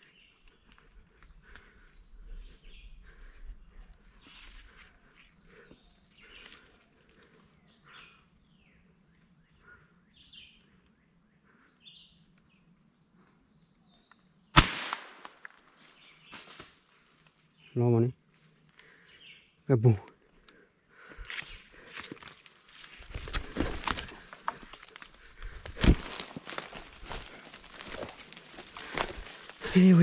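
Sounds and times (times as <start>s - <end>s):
high insect drone: 0.0s - 30.0s
rifle shot: 14.6s - 15.4s.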